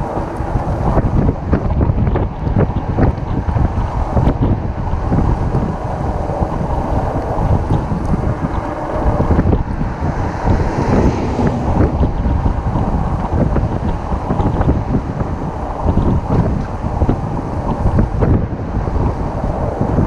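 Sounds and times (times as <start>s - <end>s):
wind buffeting microphone: 0.0s - 20.0s
car passing: 4.6s - 20.0s.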